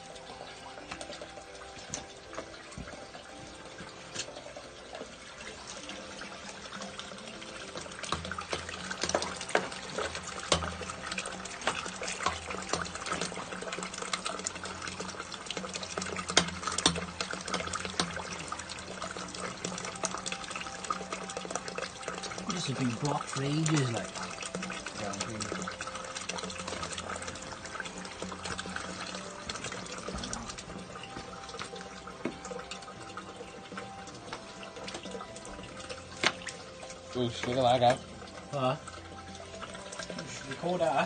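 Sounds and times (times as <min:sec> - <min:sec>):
water trickling through drain: 0:00.0 - 0:41.0
metal rod clicking and splashing: 0:07.7 - 0:27.7, 0:36.1 - 0:36.6.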